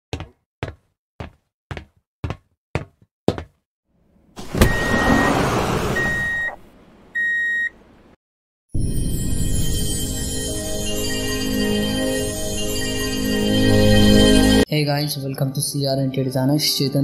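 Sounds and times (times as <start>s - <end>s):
sliding door hiss: 4.4s - 6.6s
electronic beeps: 6.0s - 6.6s.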